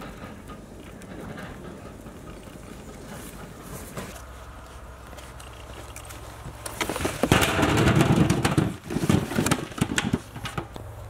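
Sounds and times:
fruit tumbling into metal tray: 6.8 - 10.7.

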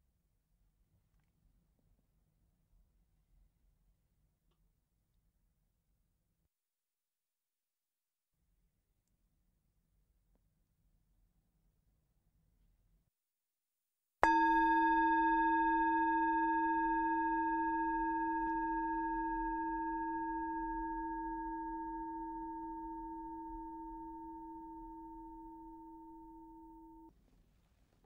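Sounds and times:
meditation bell ringing: 14.2 - 27.1.

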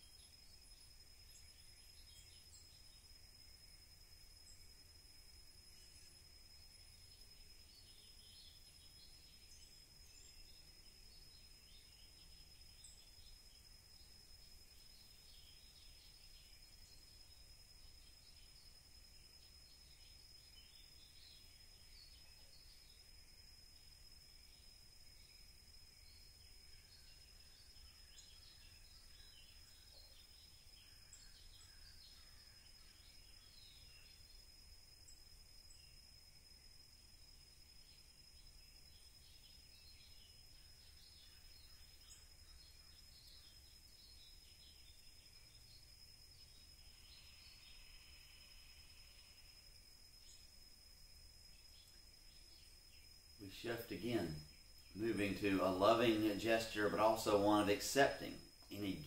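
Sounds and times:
high-pitched insect drone: 0.0 - 59.0
distant bird chirps: 37.8 - 49.5, 51.5 - 59.0
birds chirping: 53.4 - 59.0.

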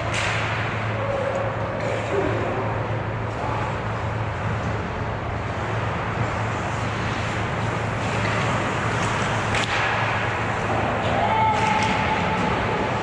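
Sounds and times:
skates scraping ice: 3.3 - 13.0.

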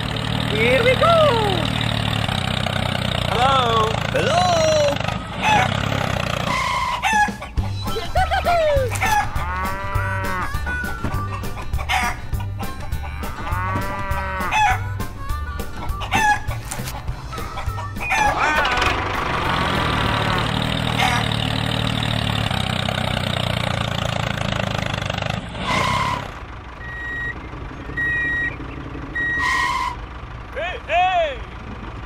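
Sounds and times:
chickens clucking: 4.9 - 21.5
short honk: 6.5 - 7.3, 25.6 - 26.4, 29.2 - 30.0
short high beeps: 26.8 - 27.4, 28.0 - 28.6.

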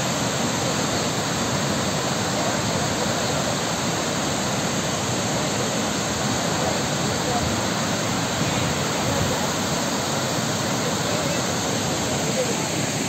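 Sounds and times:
water rushing over spillway: 0.0 - 13.0.

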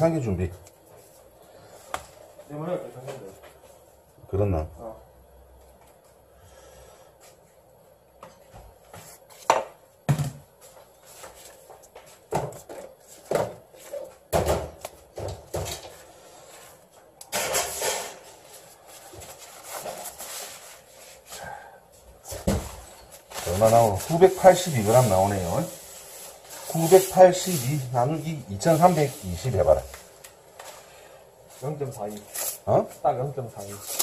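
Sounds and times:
knocks and taps on kitchen counter: 9.5 - 10.4.

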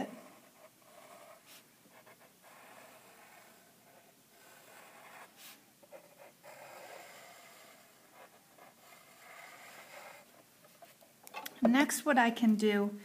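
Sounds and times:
pencil scratching on paper: 0.0 - 11.0.

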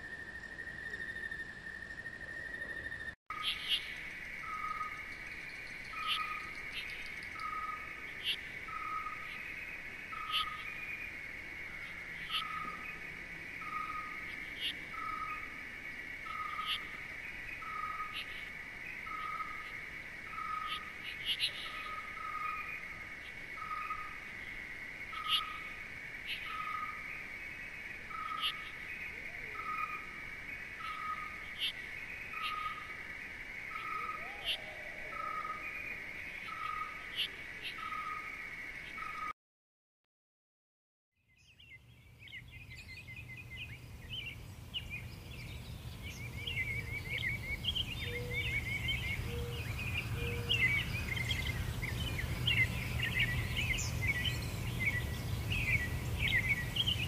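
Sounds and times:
insect drone: 0.0 - 39.2, 41.8 - 57.0
high bird chirps: 42.4 - 57.0.

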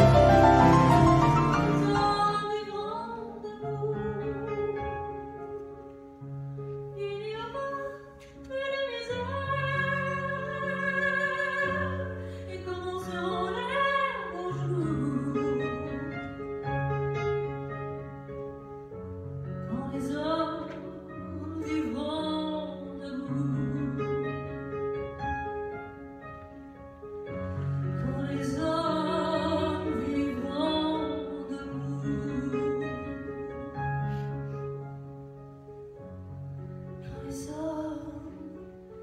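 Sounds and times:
piano: 0.0 - 39.0
woman singing: 1.2 - 5.3, 7.0 - 16.4, 19.6 - 24.6, 27.9 - 33.5, 37.0 - 38.8.

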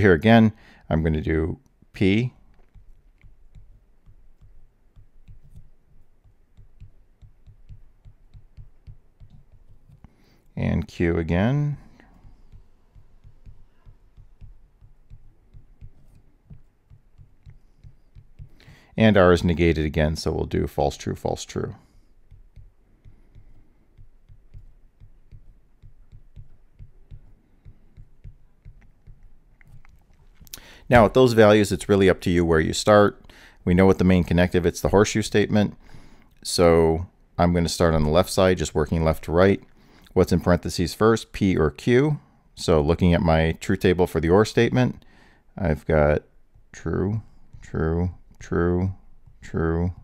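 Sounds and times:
stylus tapping on a tablet: 2.4 - 10.5, 11.7 - 19.0, 21.8 - 31.2, 46.4 - 48.5, 49.1 - 50.0.

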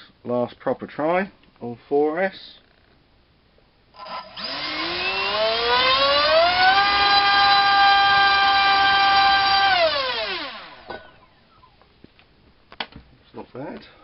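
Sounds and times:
electric motor whine: 4.0 - 11.1.

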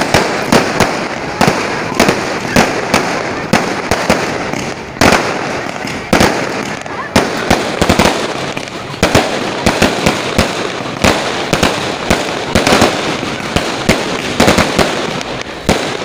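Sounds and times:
continuous din: 0.0 - 16.0
firecrackers banging: 0.0 - 16.0.

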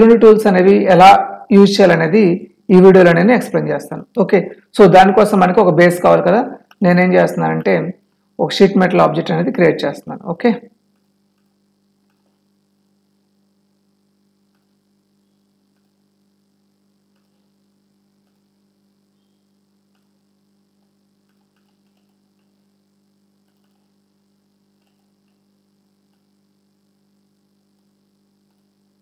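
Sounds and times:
faint electrical hum: 0.0 - 29.0
computer mouse clicks: 10.9 - 12.4, 17.1 - 17.5, 18.2 - 18.5, 19.2 - 20.1, 20.8 - 22.6, 23.4 - 24.0, 24.8 - 25.4, 27.8 - 28.7.

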